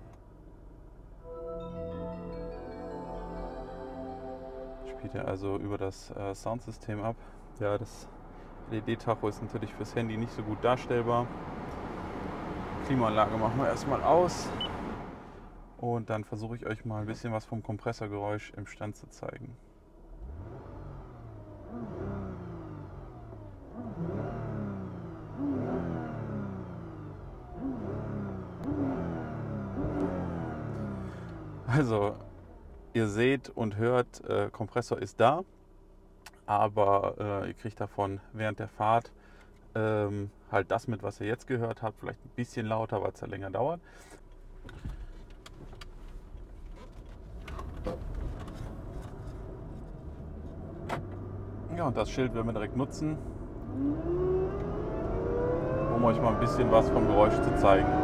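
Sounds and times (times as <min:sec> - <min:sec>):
low engine and road rumble: 0:00.0 - 0:01.6, 0:04.9 - 0:58.0
car engine revving: 0:20.2 - 0:31.7, 0:47.4 - 0:58.0
supercharger whine: 0:49.0 - 0:58.0.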